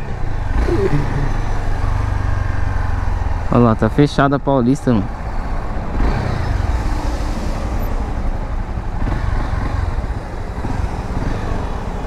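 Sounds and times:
surrounding traffic noise: 0.0 - 12.0
motorcycle engine running: 0.4 - 3.5.

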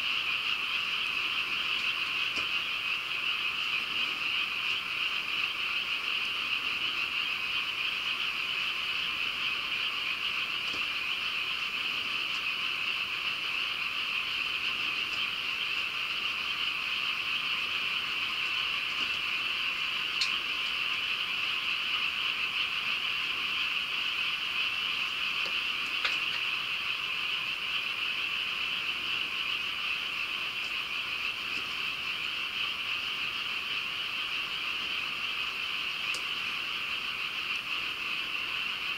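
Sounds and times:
frogs calling: 0.0 - 38.9
faint clicks: 36.1 - 36.3.

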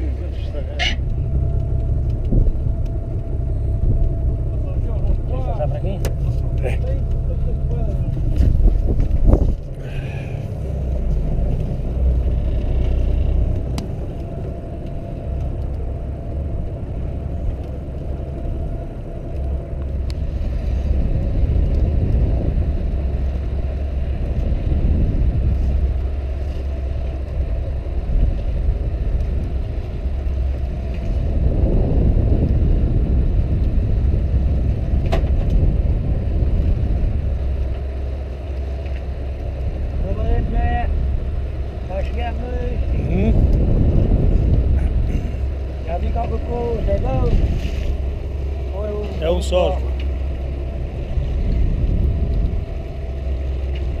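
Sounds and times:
boat engine rumbling: 0.0 - 54.0
sea noise: 0.0 - 54.0
wind on microphone: 0.0 - 54.0.

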